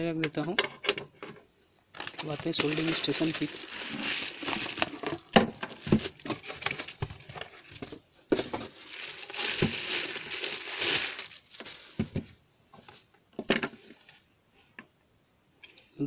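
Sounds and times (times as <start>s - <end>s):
plastic bag crinkling: 1.9s - 12.2s.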